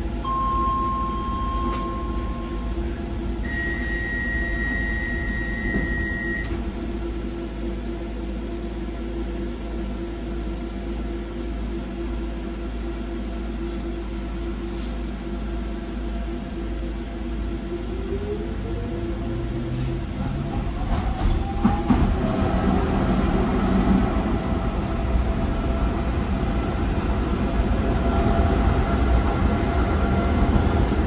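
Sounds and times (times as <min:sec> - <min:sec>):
train electrical and mechanical hum: 0:00.0 - 0:31.0
higher tone: 0:00.2 - 0:02.8.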